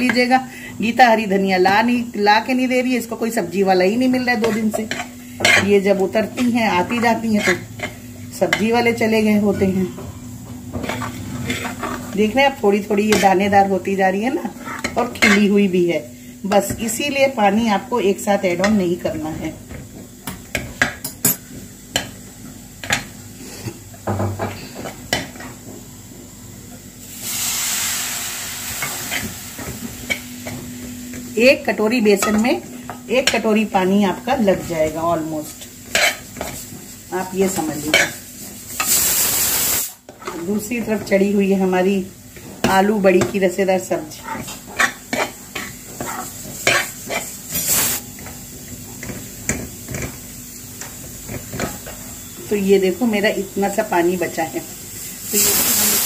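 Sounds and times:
water hissing in hot pan: 27.0s - 30.0s, 36.3s - 40.1s, 45.7s - 51.6s, 53.0s - 56.0s.

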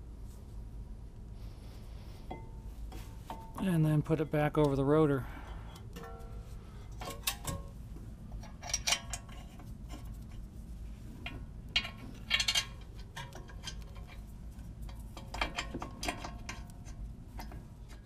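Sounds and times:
metal clinks and clanks: 2.3s - 10.1s, 11.2s - 14.3s, 14.9s - 18.0s.

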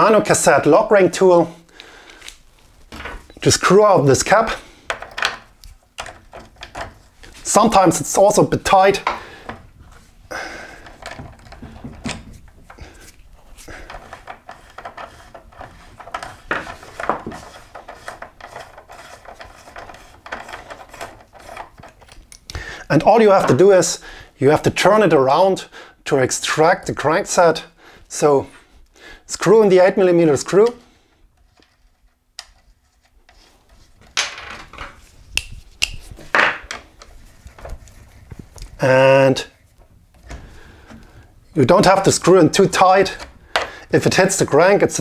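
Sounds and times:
metal tool scraping: 12.3s - 22.2s.

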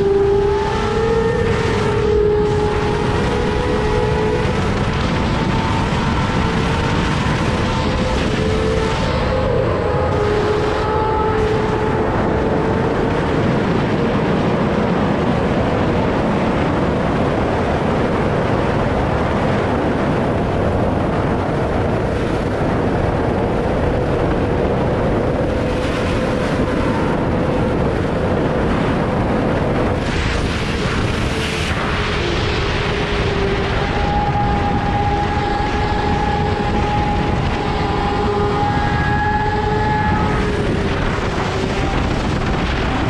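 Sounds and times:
motorcycle engine at high revs: 0.0s - 14.1s
wind rush on microphone: 0.0s - 43.0s.

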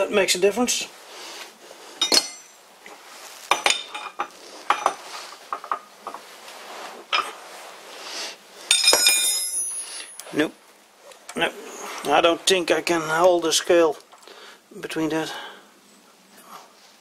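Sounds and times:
metallic clinks and knocks: 2.0s - 2.6s, 8.7s - 10.2s.

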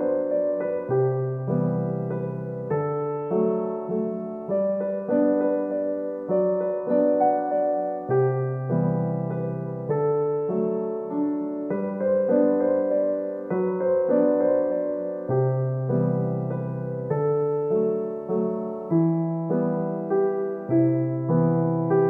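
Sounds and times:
soft piano-like keyboard music: 0.0s - 22.0s.

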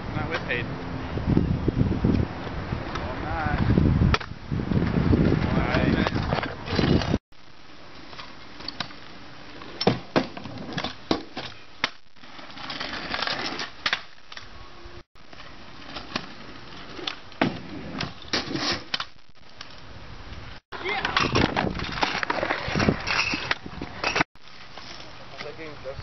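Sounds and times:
scooter wheels rolling on asphalt: 1.7s - 7.2s, 7.8s - 26.0s
scooter deck clacking on ground: 20.8s - 24.2s.

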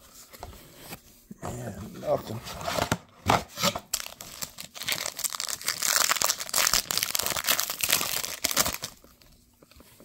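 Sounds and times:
foil wrapper crinkling: 3.9s - 9.4s.

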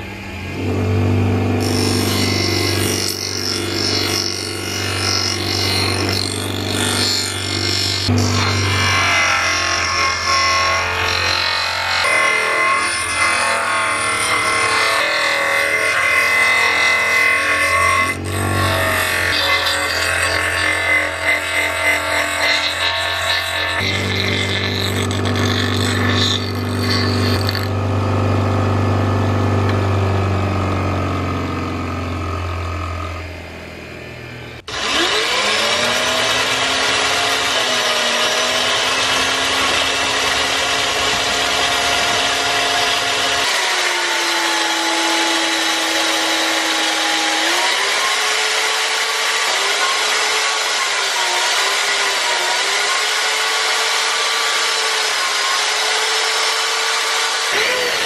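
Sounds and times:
bench grinder spinning down: 0.0s - 58.0s
electric drill running: 31.8s - 58.0s.

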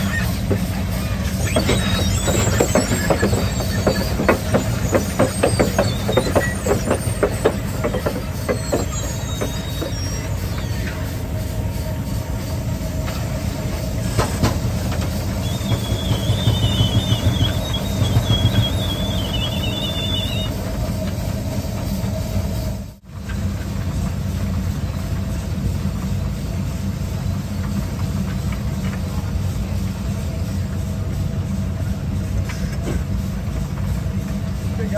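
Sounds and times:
high wavering squeal: 0.0s - 20.7s
steam crawler rumbling and clattering: 0.0s - 34.9s.

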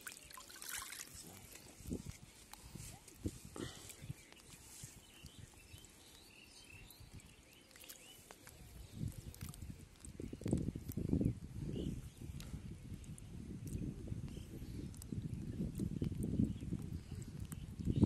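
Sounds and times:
faint water splashing: 0.0s - 5.9s, 7.0s - 10.6s.

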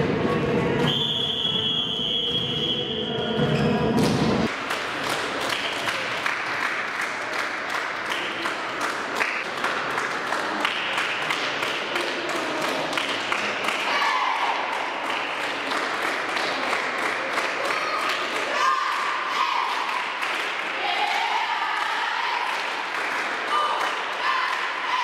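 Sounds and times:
spectators clapping and cheering: 4.1s - 25.0s.

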